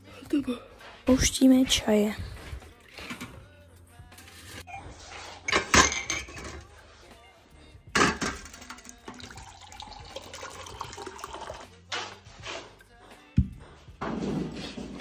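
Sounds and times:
tea pouring into mug: 8.5 - 11.7.

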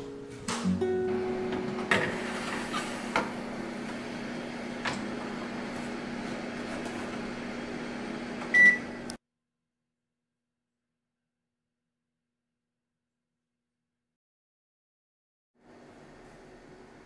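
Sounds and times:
oven humming: 0.0 - 9.2.

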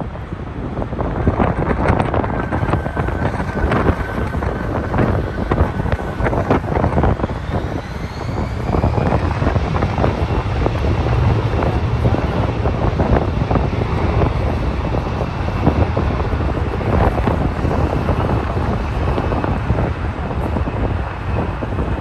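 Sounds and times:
road traffic passing: 0.0 - 22.0
wind buffeting microphone: 0.0 - 22.0
faint rising whine: 1.5 - 22.0.

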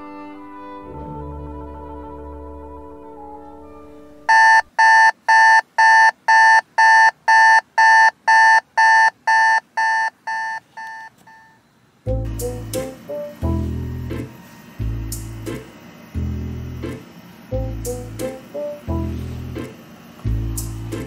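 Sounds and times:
digital alarm beeping: 4.3 - 11.6.

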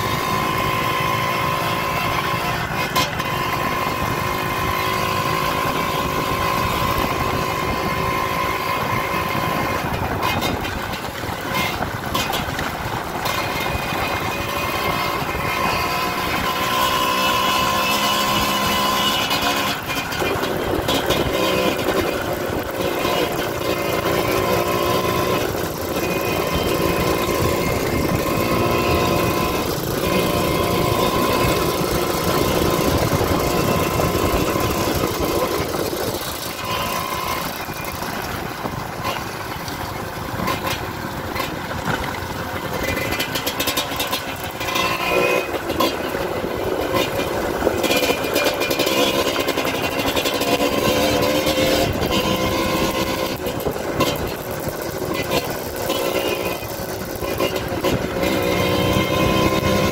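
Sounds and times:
dirt bike engine running: 0.0 - 59.9
wind and road noise: 0.0 - 59.9.

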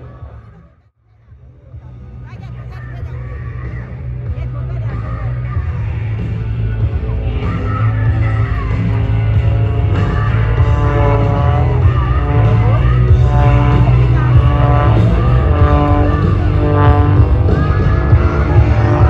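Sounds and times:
loud rock music with singing: 1.4 - 19.0.

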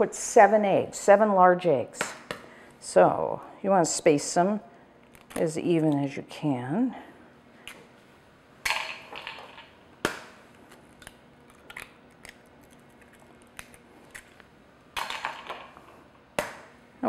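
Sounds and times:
eggshell cracking: 10.9 - 15.6.

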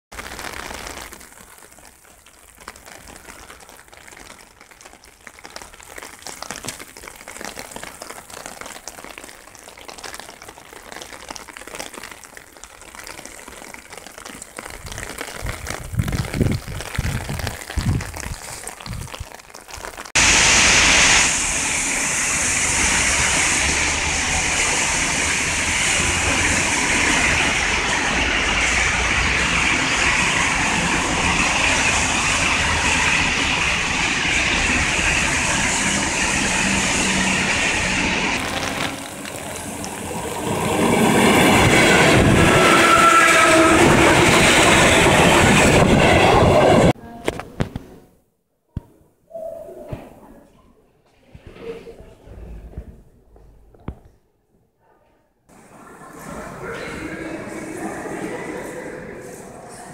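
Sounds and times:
heavy rain pouring on pavement: 0.1 - 47.0.

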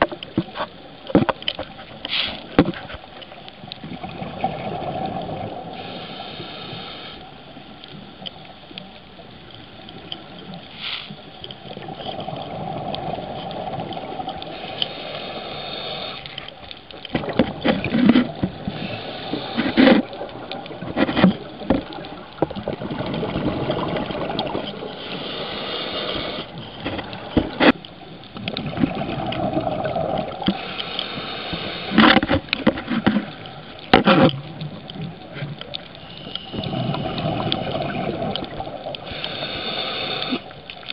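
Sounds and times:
exhaled bubbles gurgling: 3.6 - 7.2, 9.6 - 16.2, 17.0 - 40.6
diver breathing through regulator: 14.5 - 16.4, 17.9 - 20.2, 24.9 - 27.1, 30.4 - 32.2, 39.0 - 40.5.

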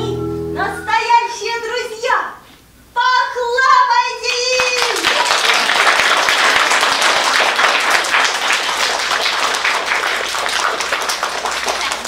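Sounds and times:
audience applauding: 4.6 - 12.0.

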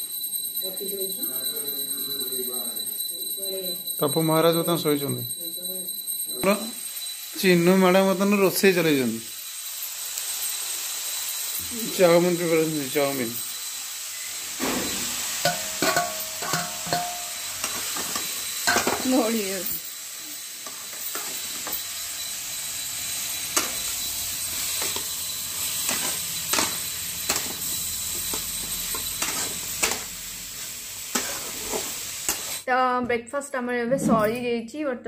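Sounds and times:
vegetables sizzling in pan: 6.4 - 32.7
spatula scraping metal pan: 14.6 - 19.8, 20.6 - 21.9, 22.7 - 32.6.

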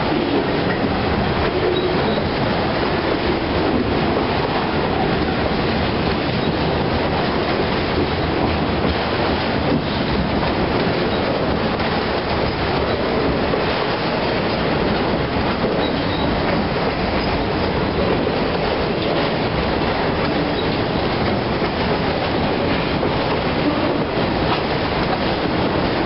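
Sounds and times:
train wheels rumbling on rails: 0.0 - 26.0.

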